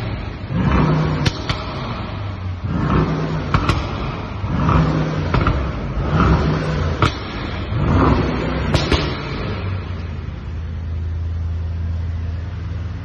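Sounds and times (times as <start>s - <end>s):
car engine revving: 0.0s - 13.0s
exhaust crack: 0.0s - 13.0s.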